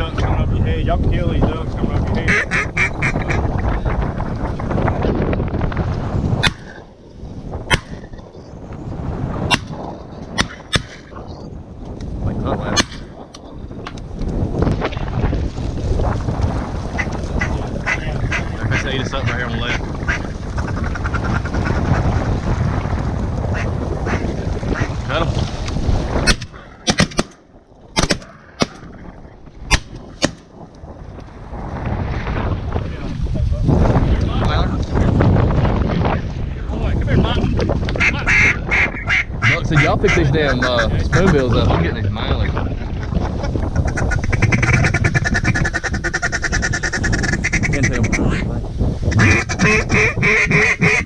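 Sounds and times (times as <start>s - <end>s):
wind rumble on microphone: 0.0s - 51.0s
shotgun shots: 26.3s - 27.4s, 28.0s - 28.9s, 29.7s - 30.4s.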